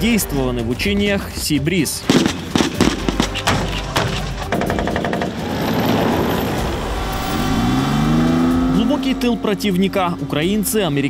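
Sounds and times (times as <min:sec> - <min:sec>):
gunshots: 0:02.1 - 0:05.5
military vehicle engine revving: 0:04.5 - 0:11.0.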